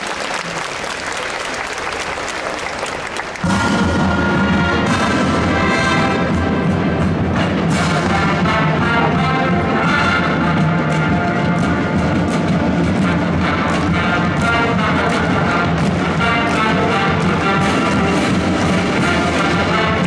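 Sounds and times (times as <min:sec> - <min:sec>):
audience applause: 0:00.0 - 0:03.6
wind band playing: 0:00.1 - 0:20.0.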